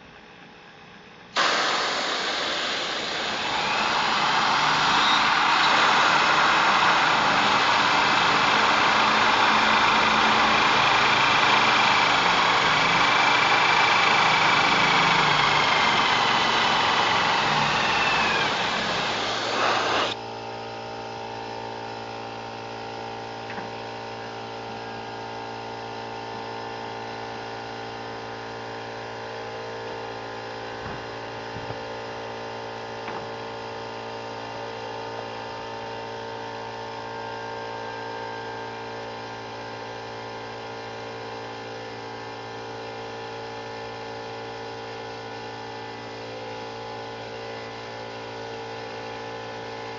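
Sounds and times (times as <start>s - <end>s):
steady machine hum: 0.8s - 20.2s
compressed air hissing: 1.4s - 20.2s
drill whining through steel: 1.4s - 20.2s.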